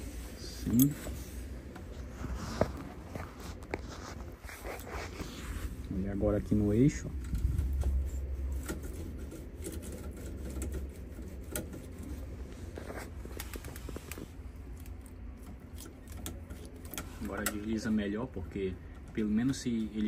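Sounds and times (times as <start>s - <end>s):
low rumble: 5.7s - 9.2s.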